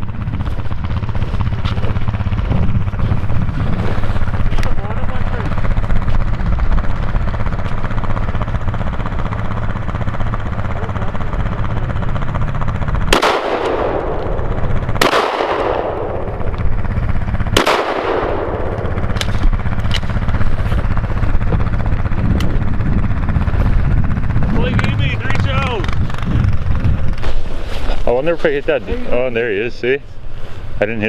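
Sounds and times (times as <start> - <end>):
low rumble: 0.0 - 30.4
shotgun shots echoing: 13.1 - 16.3, 17.6 - 19.4.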